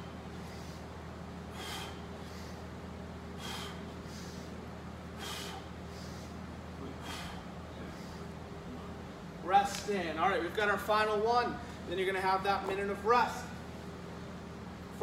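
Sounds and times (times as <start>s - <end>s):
man exhaling forcefully: 1.5s - 2.6s, 3.4s - 4.5s, 5.1s - 6.3s, 7.0s - 8.2s.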